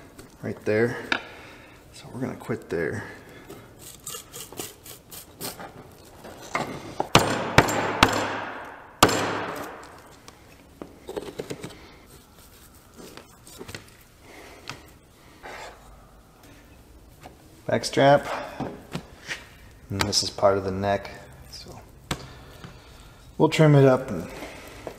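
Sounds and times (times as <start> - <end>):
cleaver chopping bones: 7.1 - 9.8.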